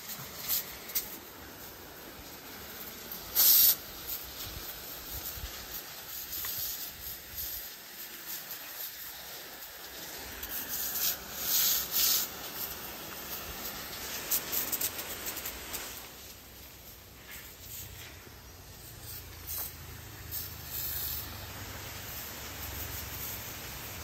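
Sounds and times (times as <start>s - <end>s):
high-pressure spray hissing: 0.0s - 24.0s.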